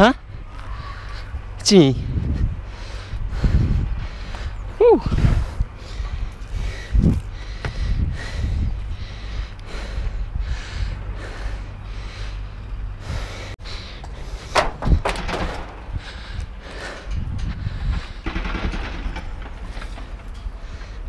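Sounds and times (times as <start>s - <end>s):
wind buffeting microphone: 0.0s - 21.0s
sharp knocks: 14.5s - 15.9s.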